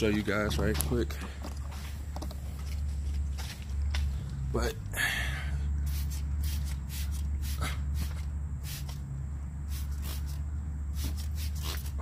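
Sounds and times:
spray bottle hissing: 5.8 - 9.1, 9.7 - 12.0.

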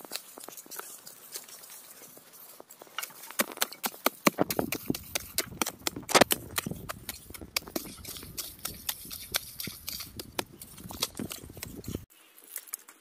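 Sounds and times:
hoe chopping into earth: 3.3 - 11.7.

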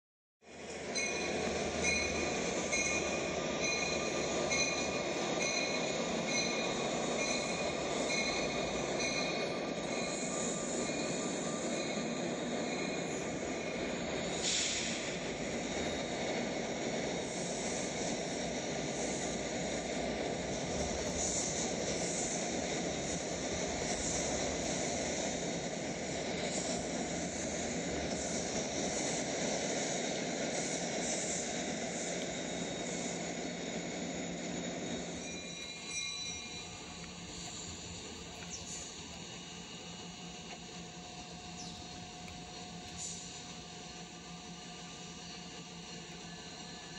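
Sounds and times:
train rolling past: 0.4 - 46.9
high ringing tones: 0.9 - 14.2, 32.4 - 40.2.

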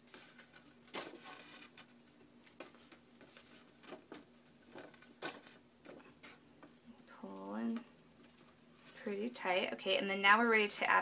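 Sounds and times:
paper pages rustling: 0.0 - 6.4.

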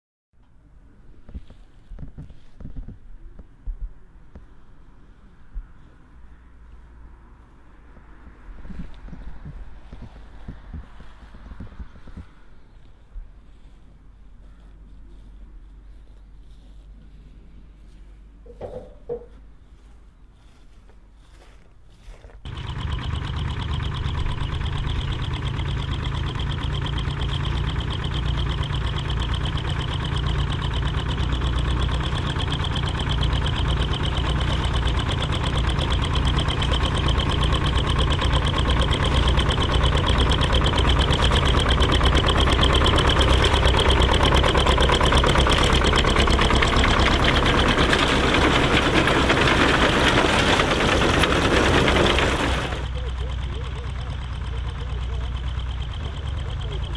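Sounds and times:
tractor engine running: 6.8 - 56.9
reaper clattering: 22.5 - 56.9.

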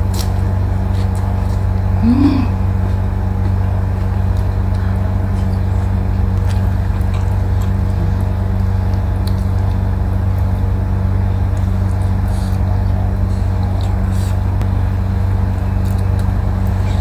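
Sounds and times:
steady low hum: 0.0 - 17.0
soft chewing and mouth clicks: 2.8 - 10.5, 11.4 - 17.0.

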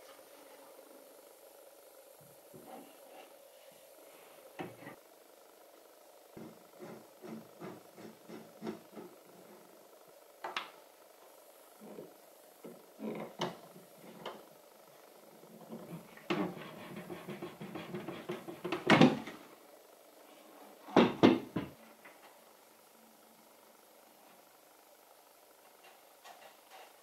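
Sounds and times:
wooden cabinet door knocks: 21.0 - 21.8.

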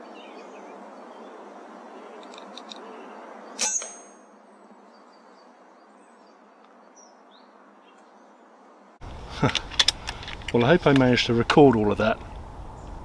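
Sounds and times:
distant bird chirps: 0.0 - 8.6
high metallic ring: 3.6 - 4.5.

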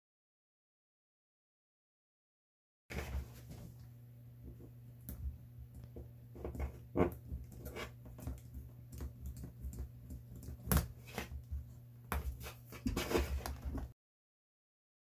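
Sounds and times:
steady low hum: 2.9 - 13.9
knife scraping rubber sole: 6.4 - 8.3.

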